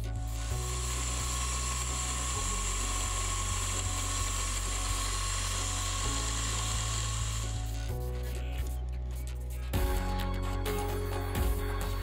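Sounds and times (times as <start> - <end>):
drill spindle high whine: 0.0 - 8.5.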